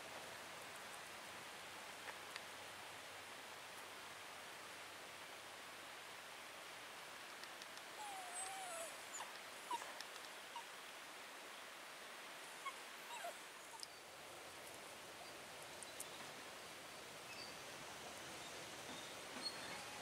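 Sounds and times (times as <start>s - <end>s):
dog whimpering: 8.0s - 9.9s, 12.6s - 13.8s, 19.4s - 20.0s
dog whining: 8.0s - 9.9s, 12.6s - 13.8s, 19.4s - 20.0s.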